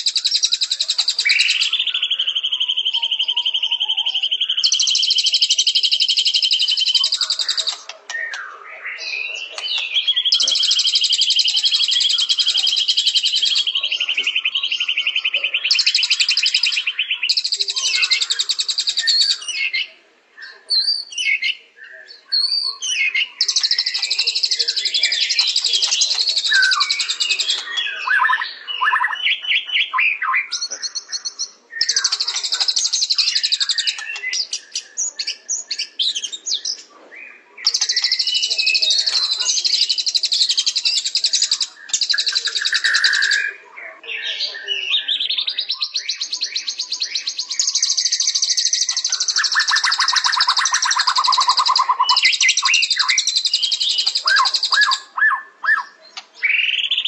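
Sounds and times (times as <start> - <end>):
bird chirps: 0.0 - 57.0.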